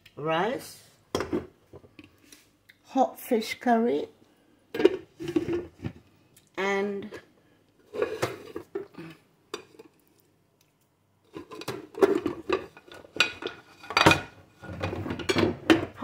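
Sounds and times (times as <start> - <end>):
metal pots and pans clanking: 4.8 - 5.8, 7.9 - 8.9, 11.3 - 16.0.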